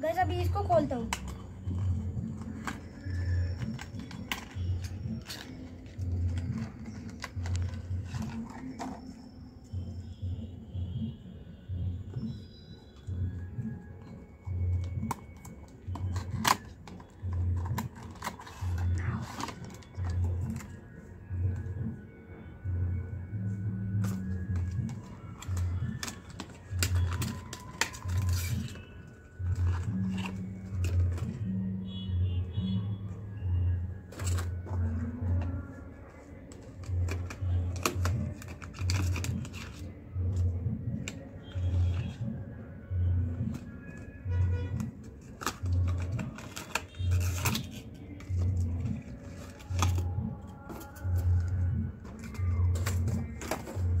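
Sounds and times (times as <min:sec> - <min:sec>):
plastic packaging rustling: 0:00.9 - 0:09.2, 0:24.0 - 0:31.5, 0:34.1 - 0:40.0, 0:43.5 - 0:54.0
music with low beat: 0:01.5 - 0:18.1, 0:19.7 - 0:46.4.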